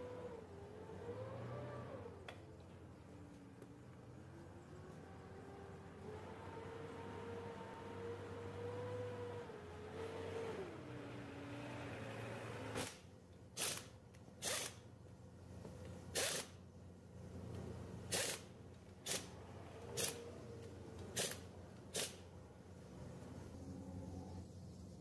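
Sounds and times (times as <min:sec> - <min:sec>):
low steady hum: 0:10.8 - 0:25.0
pneumatic impact wrench bursts: 0:12.6 - 0:14.9, 0:16.1 - 0:16.6, 0:18.1 - 0:20.3, 0:21.1 - 0:22.3.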